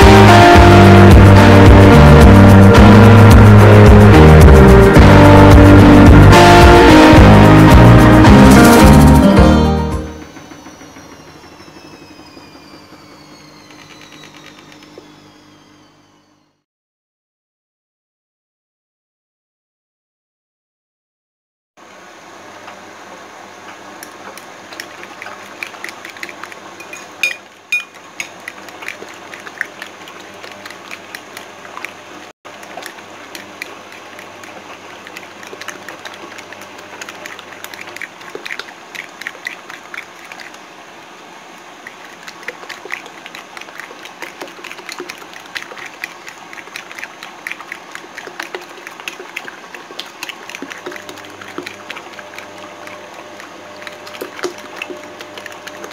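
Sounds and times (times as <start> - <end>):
wet sloshing mixture: 23.2 - 55.9
fork clinking against bowl: 26.8 - 28.4.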